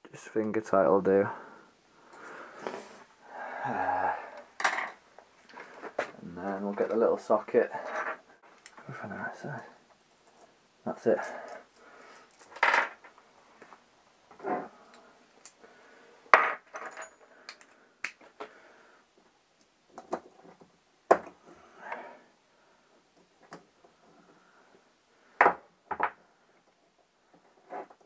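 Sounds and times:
metal tools clinking on workbench: 16.4s - 17.6s.

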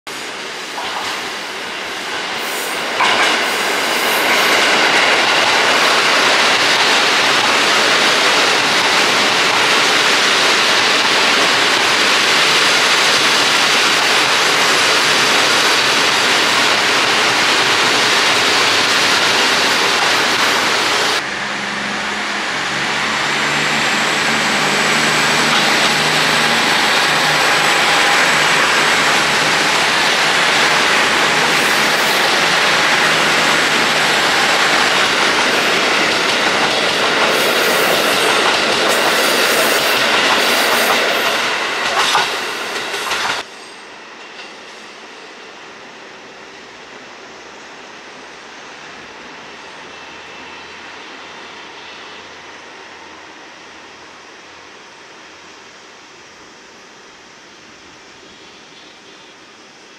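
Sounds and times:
train wheel and rail noise: 0.1s - 59.9s.

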